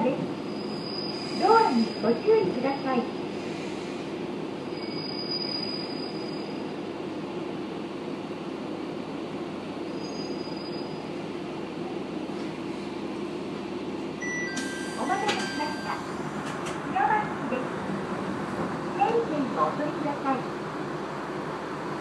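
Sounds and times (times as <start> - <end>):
train low rumble: 0.0 - 22.0
faint high squeal: 0.5 - 2.1, 4.7 - 6.7, 9.9 - 11.0.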